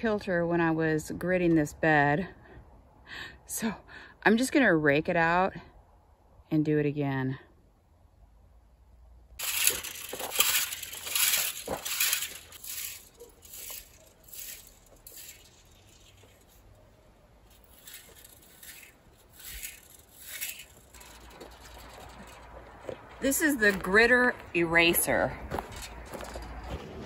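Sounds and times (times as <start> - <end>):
metal rake scraping soil: 9.4 - 27.0.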